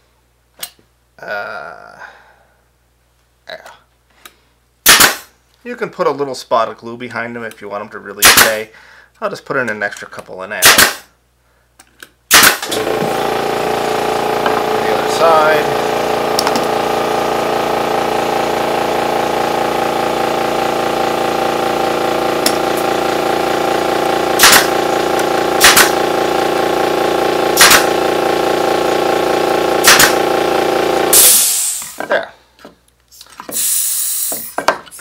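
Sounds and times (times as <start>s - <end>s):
brad nailer shots: 4.8s - 5.4s, 8.2s - 8.7s, 10.6s - 11.1s, 12.3s - 32.0s
machine drone: 12.7s - 31.8s
air hiss: 31.2s - 32.0s, 33.5s - 34.6s.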